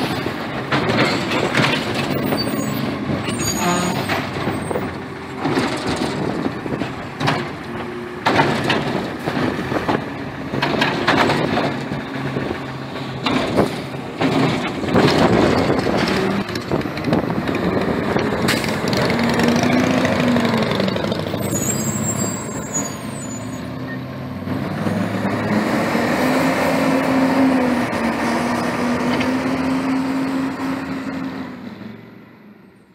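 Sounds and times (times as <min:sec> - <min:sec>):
knocks and clanks: 0:00.0 - 0:20.2
garbage truck engine running: 0:00.0 - 0:23.1.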